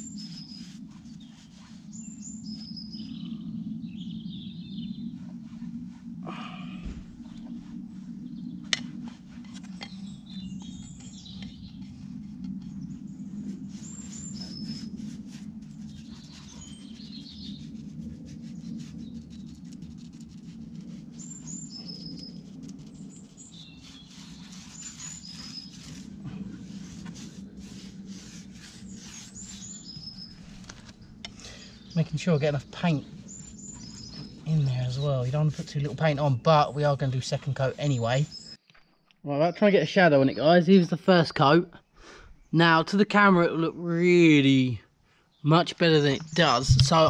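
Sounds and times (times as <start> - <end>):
paintbrush scratching on metal: 0.0 - 3.0, 8.7 - 31.0, 32.0 - 38.5
small birds chirping: 0.0 - 5.4, 8.2 - 8.8, 9.5 - 44.6, 45.2 - 47.0
steady low hum: 0.0 - 38.6, 44.7 - 47.0.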